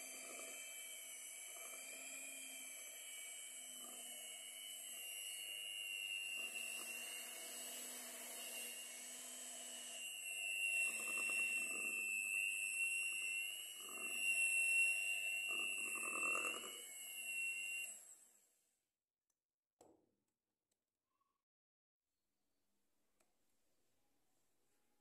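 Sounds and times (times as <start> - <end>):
electric hand mixer whisking batter: 0.0 - 18.3.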